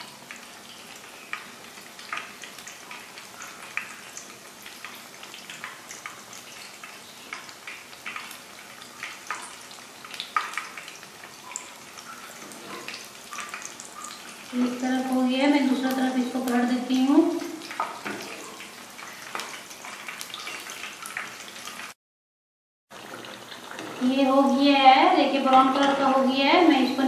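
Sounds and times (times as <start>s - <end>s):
oil crackles and pops: 0.0s - 14.6s, 17.4s - 22.0s
fritters sizzling in hot oil: 0.0s - 22.0s, 22.9s - 27.0s.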